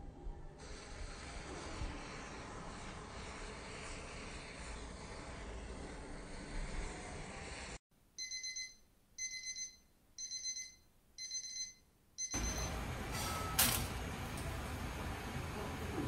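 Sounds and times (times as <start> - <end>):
alarm clock beeping: 8.2 - 13.6.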